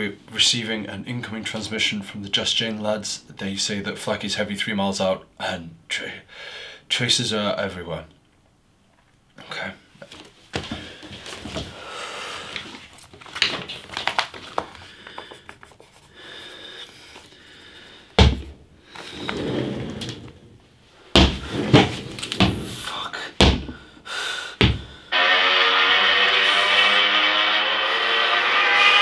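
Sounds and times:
thuds and knocks: 18.2 - 18.6, 21.2 - 22.8, 23.4 - 23.8, 24.6 - 24.9.

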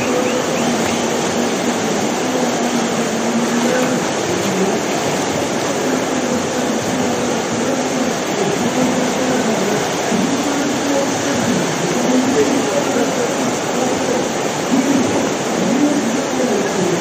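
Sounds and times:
rushing of churning water: 0.0 - 17.0.

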